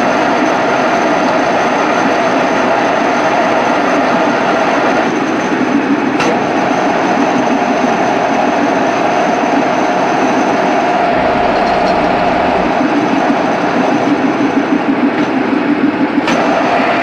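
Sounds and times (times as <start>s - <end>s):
faint high whine: 10.8s - 14.1s.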